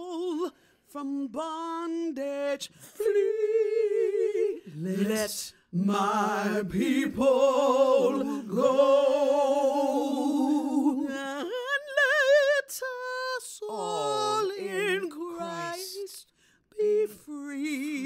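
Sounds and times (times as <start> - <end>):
woman singing unaccompanied: 0.0 - 18.0
singer breathing: 16.3 - 16.7.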